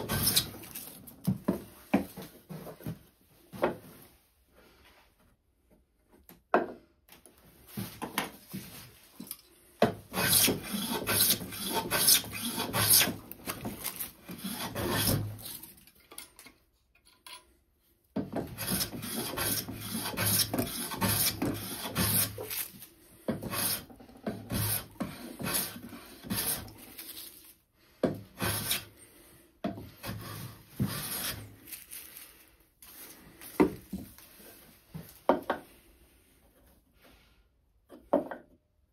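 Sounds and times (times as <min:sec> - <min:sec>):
bench plane shaving wood: 0:00.0 - 0:00.6, 0:10.1 - 0:13.3, 0:14.2 - 0:15.4, 0:18.4 - 0:22.6, 0:23.3 - 0:26.9, 0:28.3 - 0:28.9, 0:29.9 - 0:31.5.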